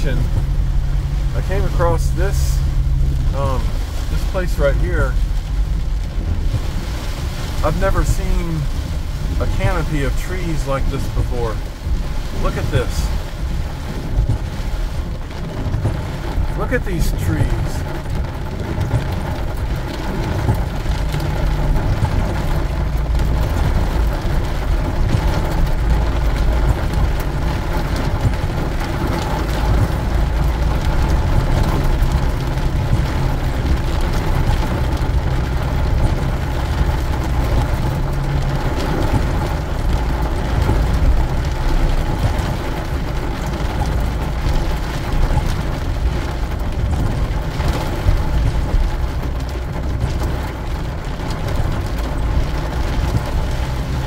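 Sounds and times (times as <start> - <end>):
tyres on wet road: 0.0 - 54.0
van engine rumble: 0.0 - 54.0.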